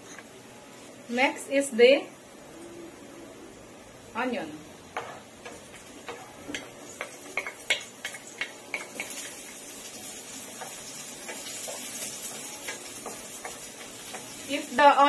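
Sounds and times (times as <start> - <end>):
onion sizzling in oil: 4.0 - 15.0
spatula stirring clicks: 5.0 - 14.5.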